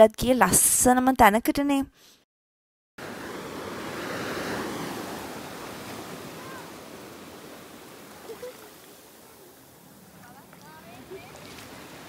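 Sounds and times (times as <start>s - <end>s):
wave washing up on sand: 3.0s - 12.0s.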